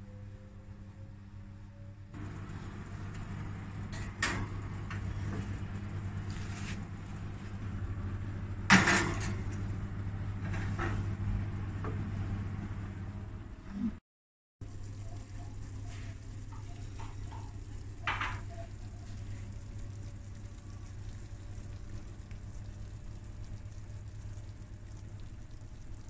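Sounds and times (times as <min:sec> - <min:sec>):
electric oven humming: 0:00.0 - 0:14.0, 0:14.6 - 0:26.0
oven door shutting: 0:02.2 - 0:05.6, 0:08.7 - 0:09.8
baking dish and oven racks clattering: 0:08.7 - 0:09.5.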